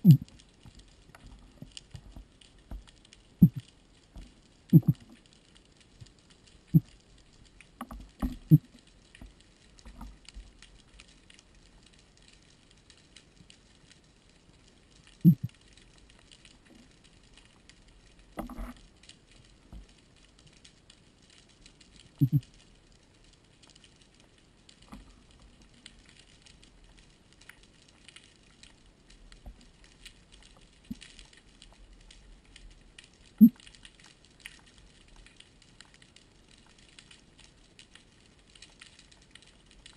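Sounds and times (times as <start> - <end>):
faint underwater crackle: 0.0 - 39.9
dull low thumps: 22.2 - 22.4.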